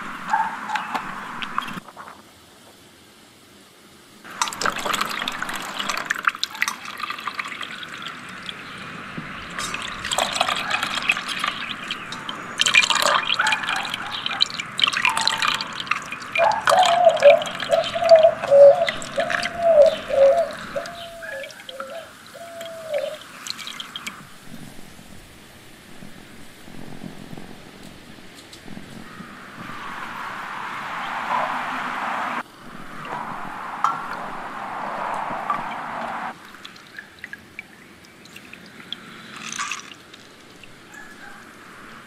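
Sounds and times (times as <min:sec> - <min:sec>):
liquid pouring: 0:04.3 - 0:18.0, 0:36.3 - 0:40.8
liquid trickling and dripping: 0:04.3 - 0:25.0, 0:36.3 - 0:41.8.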